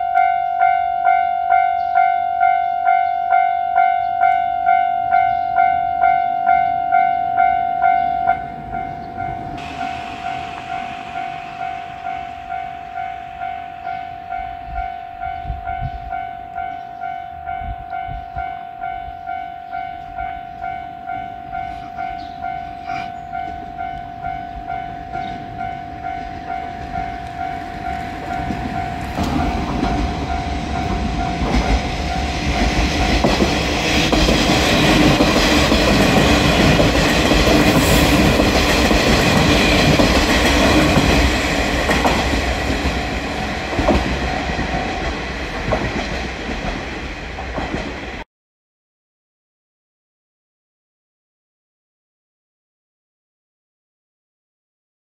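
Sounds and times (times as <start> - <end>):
level-crossing warning bell ringing: 0.0 - 47.4
diesel train engines passing: 0.0 - 48.2
train wheels clacking on rail joints: 26.0 - 48.2.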